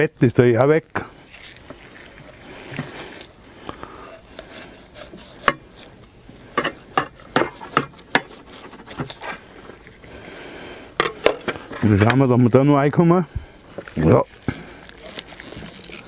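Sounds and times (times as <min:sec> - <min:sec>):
knife cutting raw chicken: 0:04.1 - 0:09.5.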